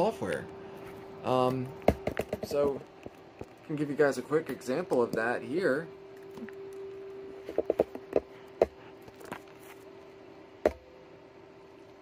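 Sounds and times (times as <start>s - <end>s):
steady hum: 0.0s - 12.0s.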